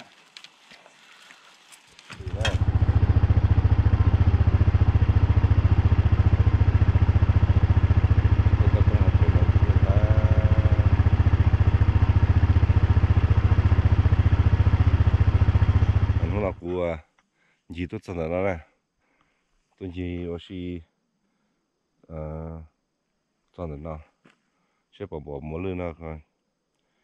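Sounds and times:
engine starting and running: 2.0 - 16.7.

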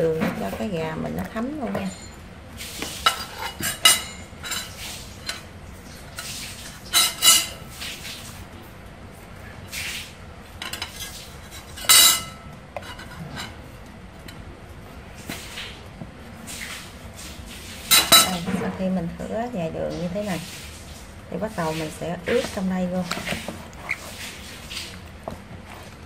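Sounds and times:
utensils clinking against dishes: 0.0 - 8.0, 10.6 - 14.4, 17.8 - 18.9.

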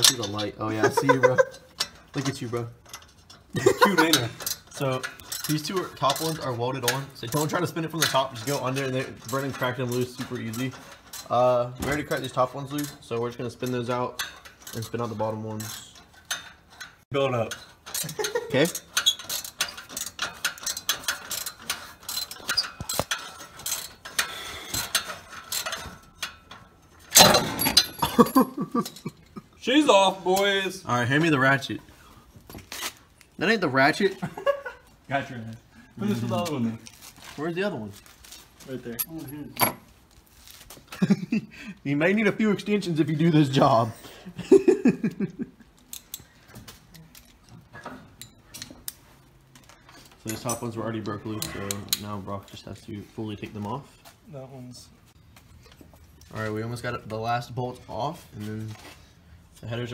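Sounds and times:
metal rattle: 0.0 - 29.6, 38.0 - 40.6
metal tools clicking and clinking: 0.0 - 29.6, 38.2 - 40.6, 45.1 - 52.7.

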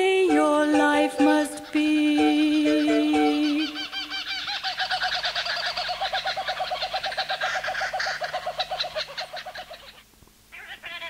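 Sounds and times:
kookaburra calling: 0.0 - 11.0.

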